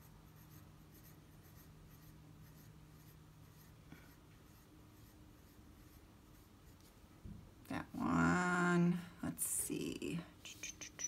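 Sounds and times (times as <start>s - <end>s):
pencil scratching on paper: 0.0s - 6.9s
low room hum: 0.0s - 11.0s.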